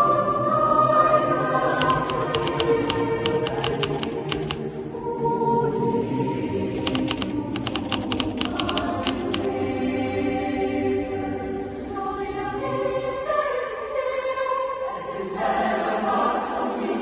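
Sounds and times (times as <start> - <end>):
choir singing: 0.0 - 17.0
typewriter keystroke clicks: 1.8 - 4.6, 6.8 - 9.5.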